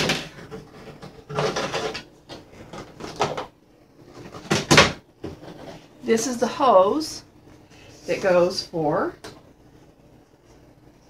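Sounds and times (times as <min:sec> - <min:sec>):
plastic hose knocking and rattling: 0:00.0 - 0:03.6, 0:04.2 - 0:05.6.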